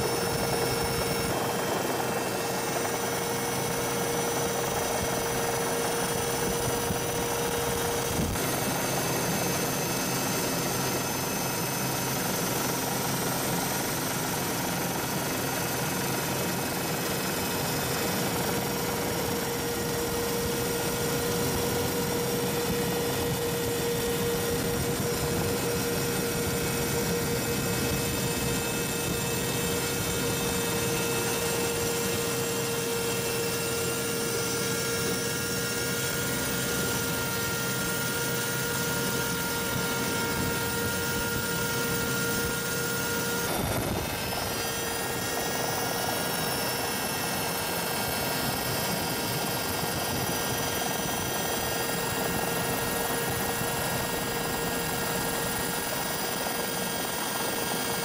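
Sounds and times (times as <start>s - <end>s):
helicopter engine and rotor: 0.0s - 58.0s.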